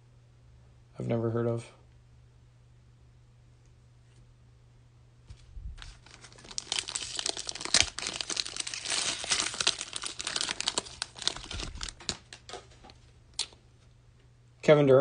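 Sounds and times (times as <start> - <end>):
foil wrapper crinkling: 5.4 - 13.0.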